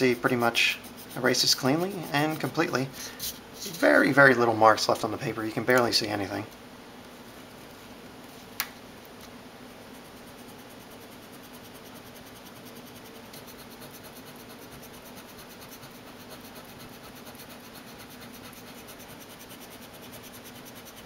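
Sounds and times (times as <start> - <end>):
steady low hum: 0.0 - 21.0
pen scratching on paper: 0.1 - 4.0, 10.0 - 21.0.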